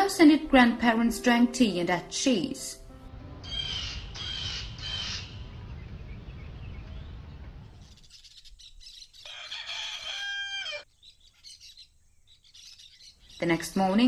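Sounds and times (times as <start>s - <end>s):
low rumble: 2.8s - 8.2s
rooster crowing: 9.2s - 10.9s.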